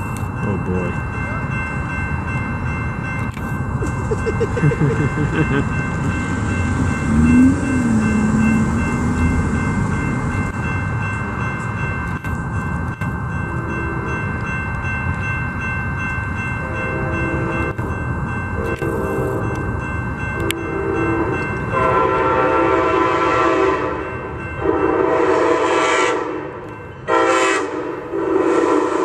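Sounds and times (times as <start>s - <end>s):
crossing bell ringing: 0.0s - 29.0s
train rumble: 0.0s - 29.0s
train horn blasts: 20.5s - 29.0s.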